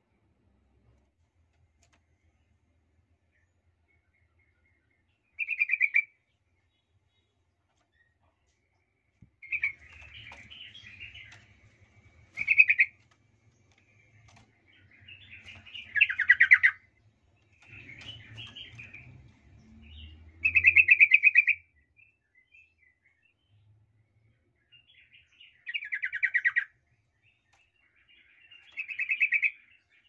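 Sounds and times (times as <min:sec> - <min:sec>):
bulbul chattering calls: 0:12.4 - 0:12.9.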